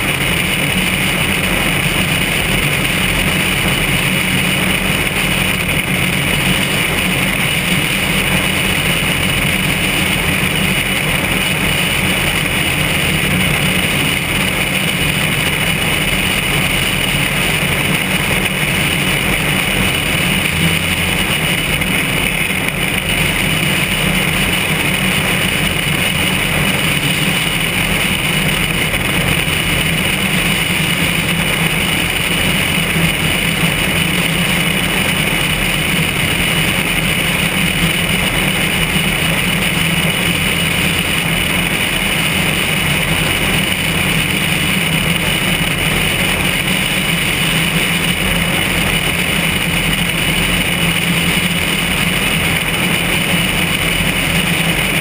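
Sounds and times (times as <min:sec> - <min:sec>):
vehicle running noise: 0:00.0 - 0:55.0
wind: 0:00.0 - 0:55.0.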